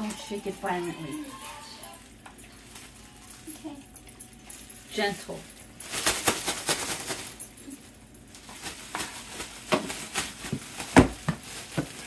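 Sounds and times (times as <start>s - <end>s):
plastic bag crinkling and swishing: 5.2s - 12.0s.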